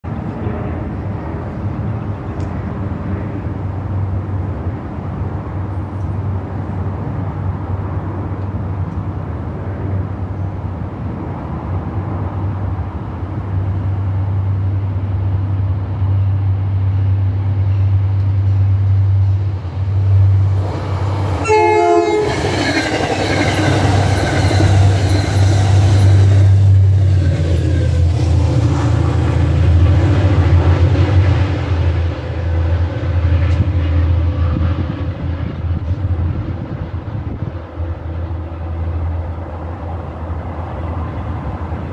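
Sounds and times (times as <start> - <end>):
diesel train engine rumble: 0.0 - 41.9
train wheel and rail noise: 0.0 - 41.9
train horn blast: 21.4 - 23.1.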